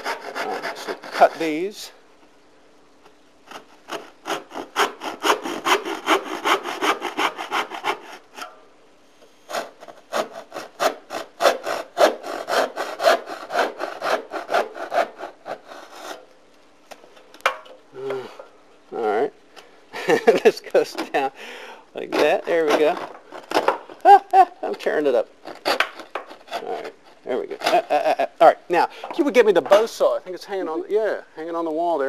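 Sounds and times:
hand saw cutting wood: 0.0 - 1.7, 3.4 - 8.5, 9.5 - 16.3, 22.0 - 23.8, 24.6 - 28.3.

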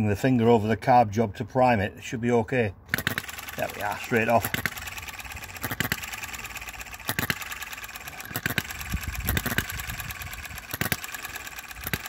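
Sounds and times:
small petrol engine ticking: 2.9 - 12.0.

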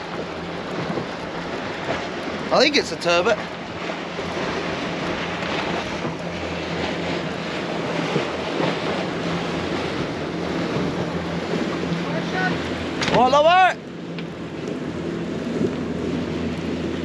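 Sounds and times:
low steady engine hum: 0.0 - 17.0
sea noise: 0.0 - 17.0
wind buffeting microphone: 0.0 - 17.0.

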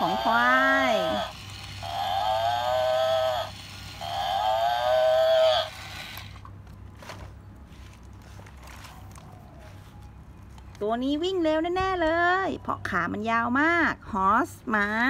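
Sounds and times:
toy electronic moo: 0.0 - 6.2.

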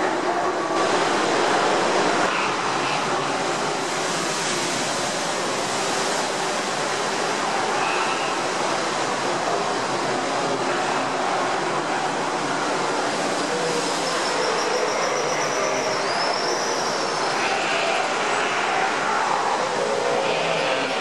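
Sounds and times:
ocean surf washing over rocks: 0.1 - 14.7.

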